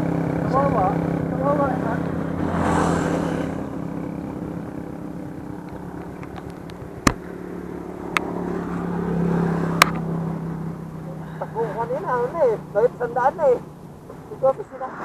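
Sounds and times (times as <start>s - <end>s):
motorcycle engine running: 0.0s - 14.9s.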